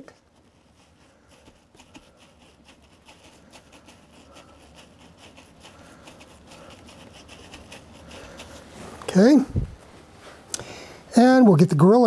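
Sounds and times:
wet sponge scrubbing hardboard: 0.3 - 9.4.

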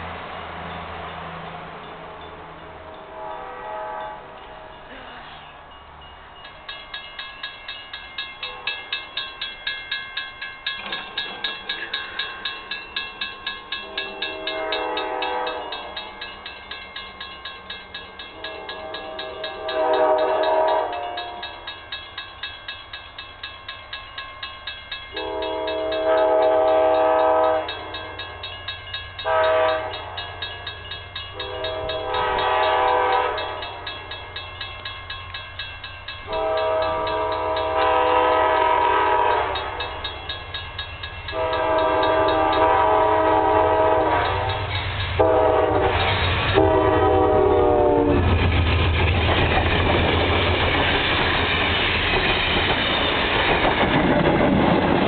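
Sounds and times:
train rumbling and clattering past: 0.0 - 55.0
train air horn blasts: 2.8 - 4.7, 8.4 - 8.8, 13.8 - 15.9, 18.4 - 21.6, 25.1 - 28.0, 29.2 - 30.4, 31.4 - 33.8, 36.3 - 39.9, 41.3 - 48.2.

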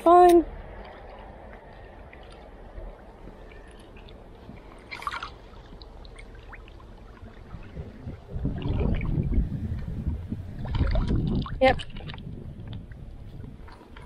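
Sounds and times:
faint river water: 0.0 - 14.0
low rumbling on microphone: 0.4 - 14.0
water splash: 2.0 - 9.5, 10.5 - 12.4.

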